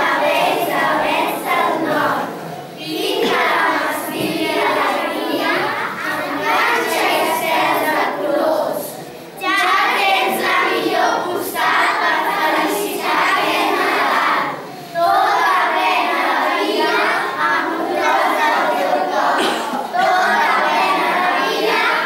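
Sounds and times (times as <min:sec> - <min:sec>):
children's choir singing: 0:00.0 - 0:22.0.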